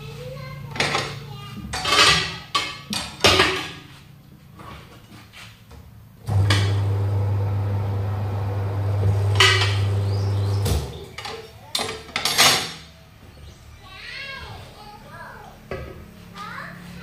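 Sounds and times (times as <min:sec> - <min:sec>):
turntable motor humming: 0:06.3 - 0:10.9.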